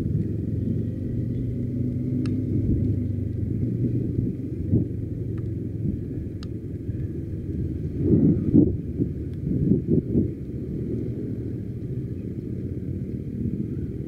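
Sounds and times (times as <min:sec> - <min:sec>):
motorcycle engine rumbling: 0:00.0 - 0:14.0
faint clicks: 0:01.9 - 0:03.0, 0:05.3 - 0:05.6, 0:06.3 - 0:07.1.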